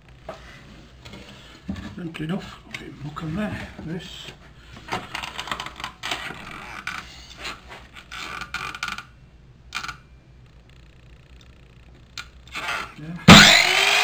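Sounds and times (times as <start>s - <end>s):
wood knocking and scraping: 0.3s - 2.2s
saw mechanism clicks and creaks: 8.0s - 9.1s, 9.7s - 10.0s.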